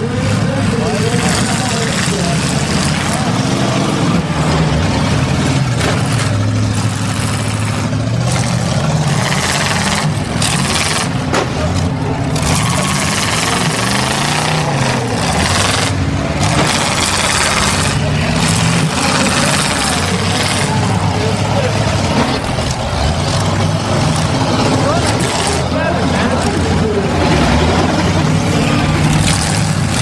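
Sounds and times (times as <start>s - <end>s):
car engines revving: 0.0s - 30.0s
crowd noise: 0.0s - 30.0s
car bodies colliding: 11.0s - 12.0s.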